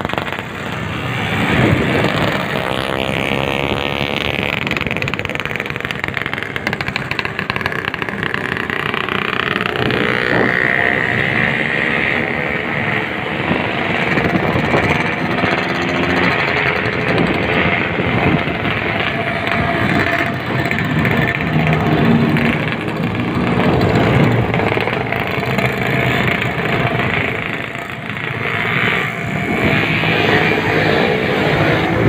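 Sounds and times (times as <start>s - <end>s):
motorcycle engines revving: 0.0s - 32.0s.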